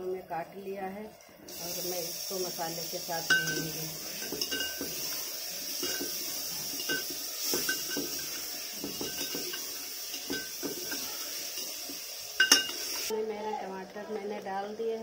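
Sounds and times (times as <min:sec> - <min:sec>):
frying hiss: 0:01.4 - 0:15.0
spoon clinking against pot: 0:03.2 - 0:05.0, 0:05.8 - 0:13.1
metal spoon scraping pot: 0:03.2 - 0:13.1.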